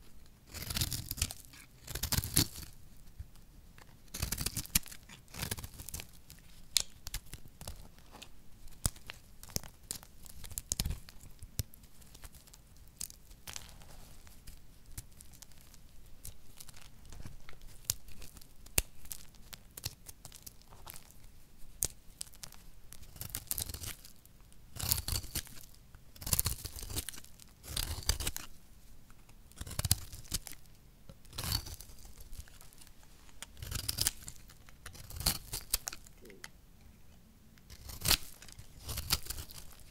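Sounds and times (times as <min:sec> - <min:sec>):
soap crumbling and crunching: 0:00.4 - 0:36.5, 0:37.6 - 0:39.9
utility knife cutting soap: 0:00.5 - 0:02.7, 0:33.4 - 0:36.1, 0:37.6 - 0:39.9.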